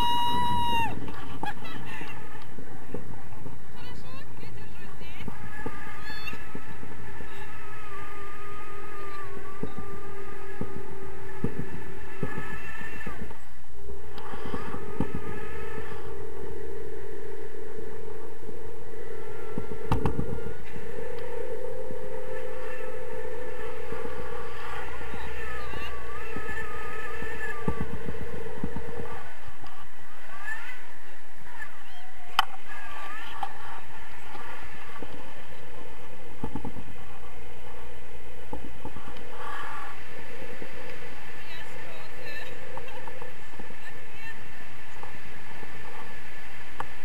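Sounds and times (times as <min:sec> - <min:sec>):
steady hum: 0:00.0 - 0:47.0
wind buffeting microphone: 0:00.0 - 0:47.0.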